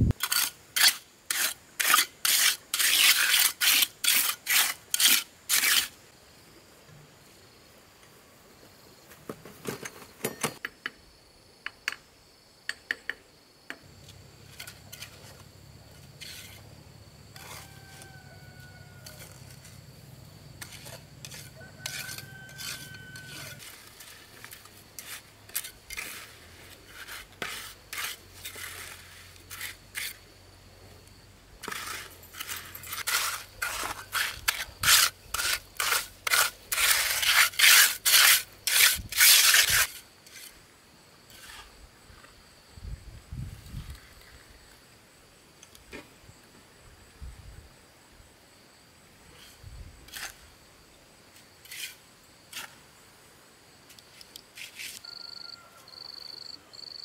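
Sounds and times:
rasping scraping strokes: 0:00.1 - 0:06.0, 0:14.4 - 0:16.7, 0:17.3 - 0:18.2, 0:18.8 - 0:19.8, 0:20.6 - 0:30.2, 0:31.6 - 0:40.6, 0:41.3 - 0:41.8, 0:49.4 - 0:50.4, 0:51.6 - 0:52.8, 0:54.6 - 0:55.0.

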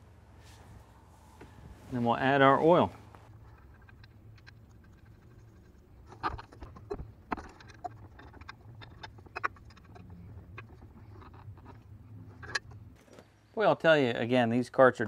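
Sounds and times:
low hum: 0:00.0 - 0:13.6
metallic clicks and knocks: 0:03.4 - 0:13.3.

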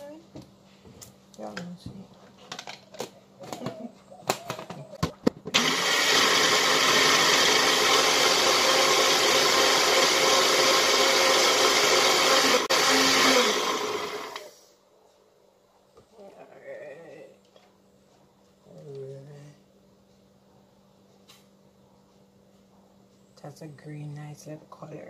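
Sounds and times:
blender grinding: 0:05.5 - 0:14.6.

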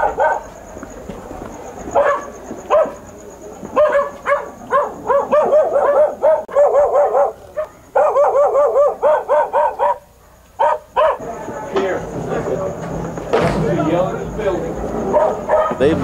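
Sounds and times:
dog barking rapidly: 0:00.0 - 0:00.5, 0:01.9 - 0:03.0, 0:03.7 - 0:11.3, 0:15.1 - 0:16.0.

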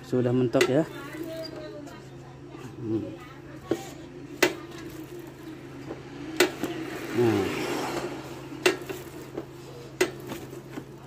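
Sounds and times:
motorcycle wheel spinning whir: 0:00.0 - 0:11.0.

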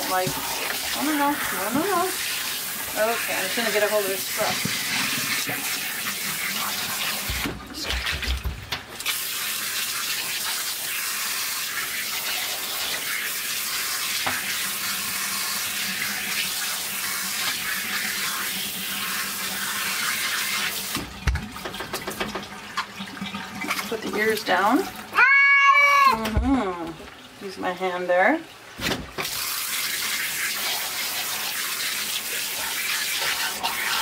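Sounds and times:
water spraying from shower sprayer: 0:00.0 - 0:21.1, 0:29.2 - 0:34.0.

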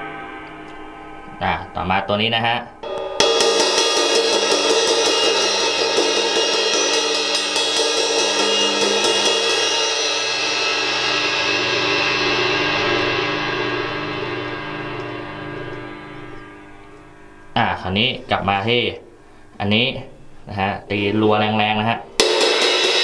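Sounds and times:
crash cymbal struck with drumstick: 0:02.8 - 0:17.6, 0:22.2 - 0:23.0.

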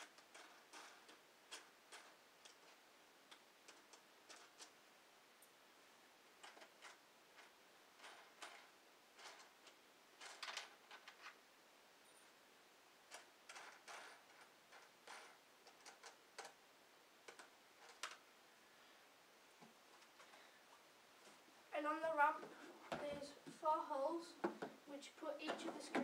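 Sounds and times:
small plastic parts clicking: 0:00.0 - 0:04.8, 0:06.4 - 0:11.4, 0:13.1 - 0:16.6, 0:17.2 - 0:18.3.

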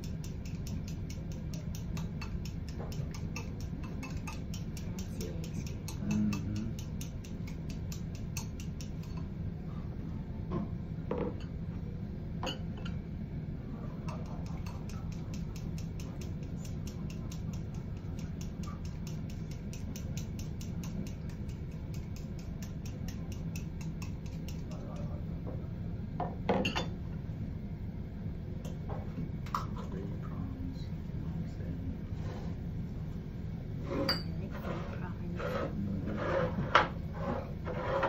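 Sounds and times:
chopsticks clicking against bowl: 0:00.0 - 0:09.3, 0:14.1 - 0:25.2.

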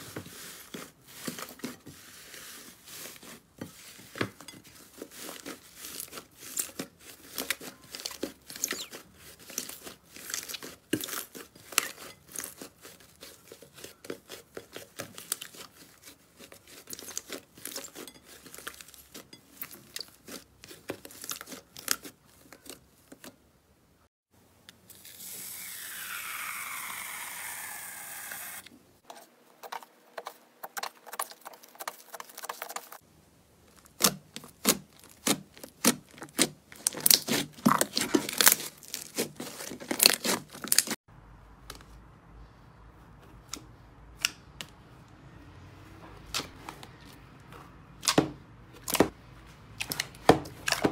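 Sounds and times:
slime crackling and tearing: 0:05.0 - 0:19.0, 0:33.7 - 0:41.0.

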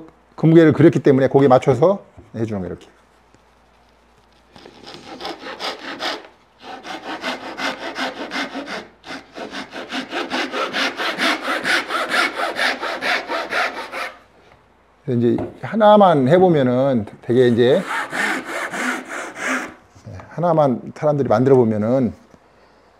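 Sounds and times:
hand saw cutting wood: 0:04.6 - 0:14.2, 0:17.7 - 0:19.8.

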